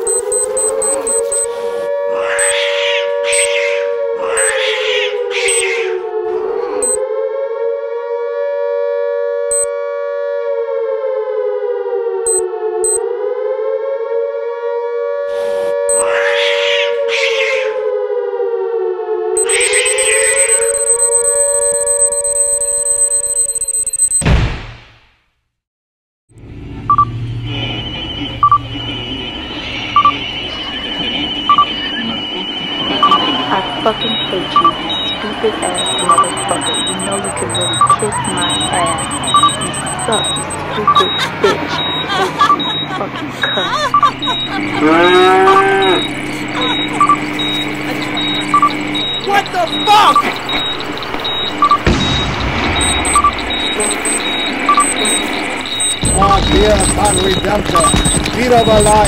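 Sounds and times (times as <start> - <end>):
electronic double beeps: 0.0 - 1.6, 2.4 - 2.6, 3.3 - 3.6, 5.4 - 5.7, 6.8 - 7.0, 12.3 - 13.0, 15.8 - 16.1, 19.4 - 24.3, 26.9 - 59.0
steady high-pitched tone: 0.0 - 2.6, 4.4 - 4.6, 6.3 - 7.0, 15.3 - 16.2, 19.4 - 24.2, 26.5 - 59.0
siren-like wail: 0.0 - 23.6, 26.5 - 59.0
short high blips: 19.4 - 24.2, 41.8 - 59.0.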